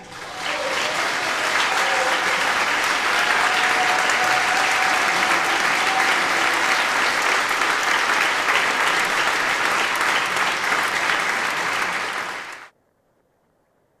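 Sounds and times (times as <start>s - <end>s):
audience applauding: 0.0s - 12.7s.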